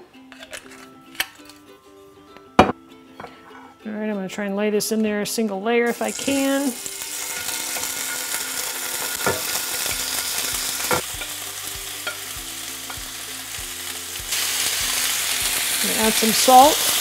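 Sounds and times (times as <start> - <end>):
chicken sizzling in hot oil: 5.9 - 17.0.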